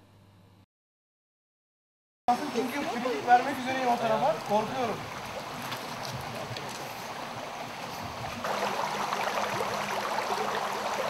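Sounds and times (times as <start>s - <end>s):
creek running over stones: 2.3s - 11.0s.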